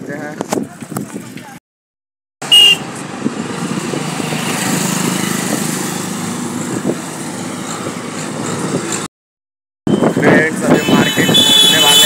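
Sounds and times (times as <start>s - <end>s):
road noise rushing: 2.4s - 9.1s
vehicle engine passing: 2.9s - 9.1s.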